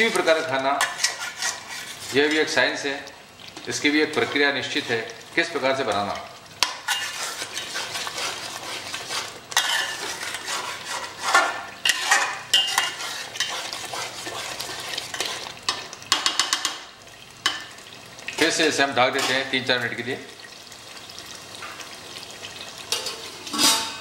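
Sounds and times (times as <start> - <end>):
metal spatula scraping pot: 0.0 - 2.8, 3.6 - 5.1, 6.6 - 16.7, 18.4 - 19.7, 22.9 - 24.0
masala sizzling: 0.0 - 24.0
spatula clinking against pot: 10.9 - 14.4.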